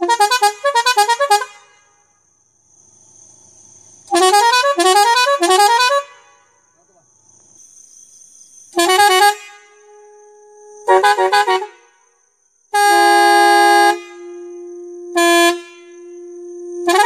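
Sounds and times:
multi-tone electric horn blasts: 0:00.0 - 0:01.9, 0:04.1 - 0:06.4, 0:08.8 - 0:12.0, 0:12.7 - 0:17.0
faint steady tone: 0:01.3 - 0:17.0.

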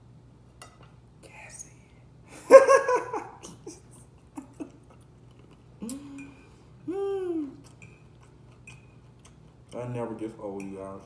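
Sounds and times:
man chuckling: 0:02.3 - 0:04.9.

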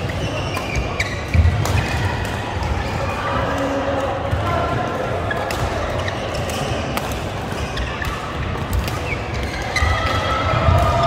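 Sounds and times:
shoes squeaking on court: 0:00.0 - 0:01.9, 0:05.2 - 0:10.0
din of sports hall: 0:00.0 - 0:11.0
racket hitting shuttlecock: 0:00.4 - 0:02.8, 0:05.3 - 0:11.0.

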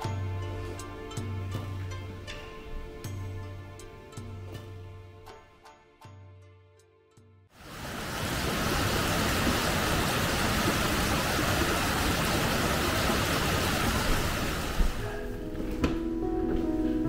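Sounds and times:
soft music: 0:00.0 - 0:07.5, 0:14.8 - 0:17.0
water flowing in a stream: 0:07.6 - 0:15.0.

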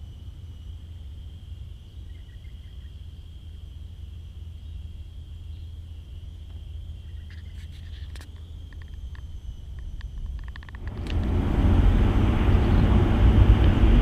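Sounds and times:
constant low rumble: 0:00.0 - 0:14.0
insects shrilling: 0:01.6 - 0:11.0.

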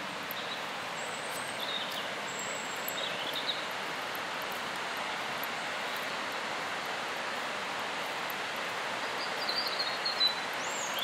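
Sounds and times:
faint high bird chirps: 0:09.2 - 0:11.0.

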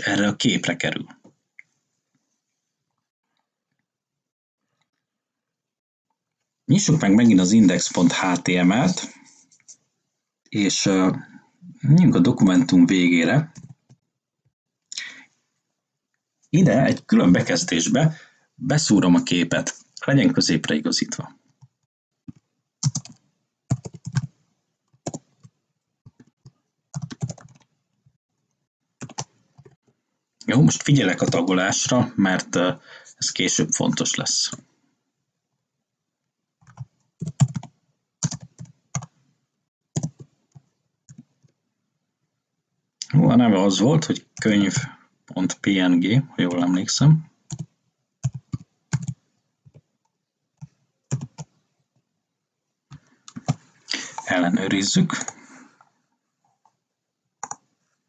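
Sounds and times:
keyboard typing: 0:13.5 - 0:14.0, 0:22.3 - 0:27.8, 0:29.0 - 0:29.8, 0:36.6 - 0:39.2, 0:40.0 - 0:41.5, 0:47.5 - 0:49.9, 0:50.6 - 0:51.6, 0:52.9 - 0:54.3, 0:57.4 - 0:57.7
keyboard keystrokes: 0:22.3 - 0:24.3, 0:36.7 - 0:39.1.

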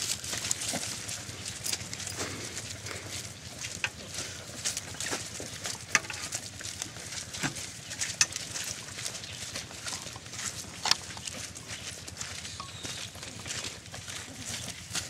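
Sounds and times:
footsteps crunching through leaves: 0:00.0 - 0:15.0.

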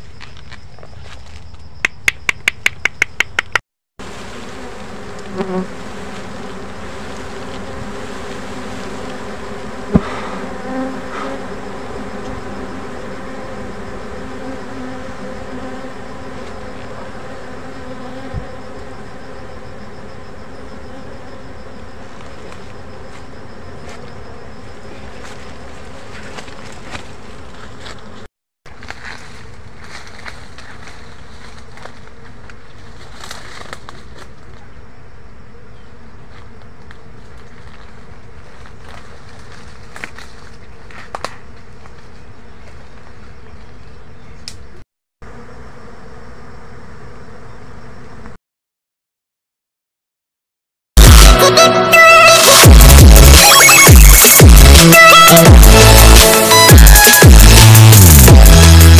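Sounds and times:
bees buzzing: 0:04.0 - 0:28.3, 0:45.2 - 0:48.4, 0:51.0 - 0:58.9.

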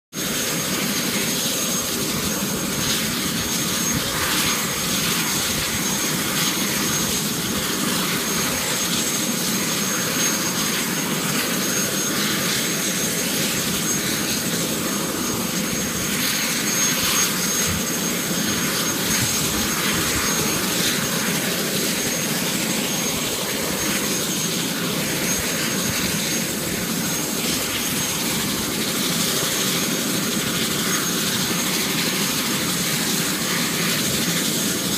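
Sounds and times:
helicopter turbine engine whine: 0:00.1 - 0:34.9.

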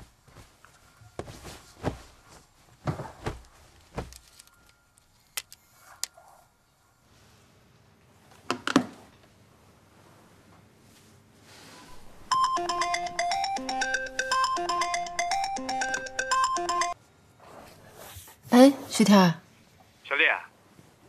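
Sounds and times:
soft thumps and rustles: 0:00.0 - 0:04.3.

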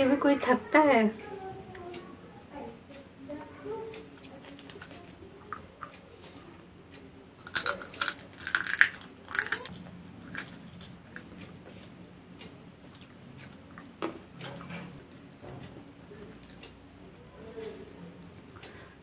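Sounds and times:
popcorn crunching and chewing: 0:04.2 - 0:06.0, 0:07.4 - 0:11.9.

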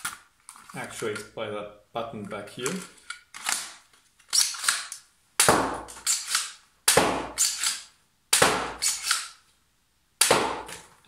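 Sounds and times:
toy blaster firing crack: 0:04.3 - 0:09.4, 0:10.2 - 0:10.8.

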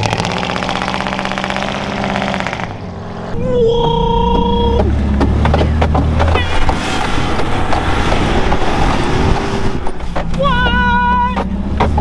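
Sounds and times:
vehicle engine running hard: 0:00.0 - 0:12.0
vehicle body knocks and rattles: 0:04.3 - 0:08.8, 0:09.8 - 0:12.0.

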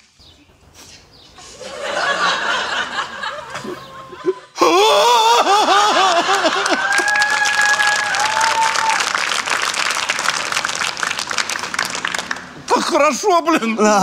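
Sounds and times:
audience laughter: 0:01.4 - 0:04.6, 0:05.3 - 0:07.0
person laughing ha-ha-ha: 0:03.3 - 0:06.8.

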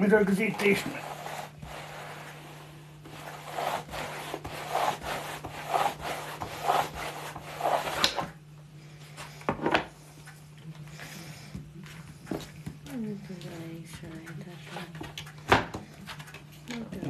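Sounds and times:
rolling table halves rubbing: 0:00.5 - 0:08.3.

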